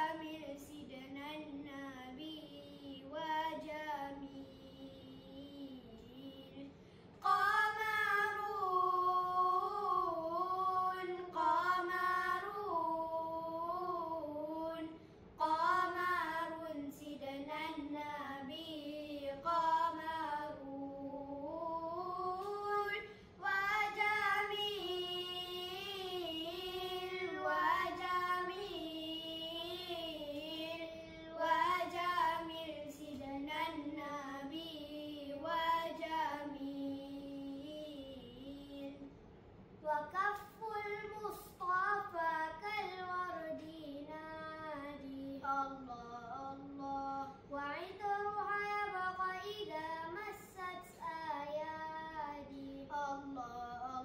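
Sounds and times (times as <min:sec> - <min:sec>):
boys singing unaccompanied: 0:00.0 - 0:39.1.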